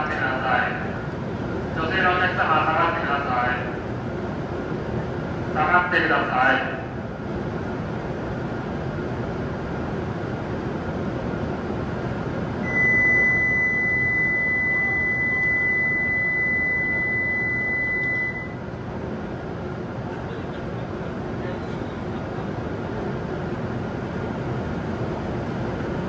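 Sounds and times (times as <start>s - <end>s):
train hum at platform: 0.0s - 26.0s
high electronic beep: 12.6s - 18.6s.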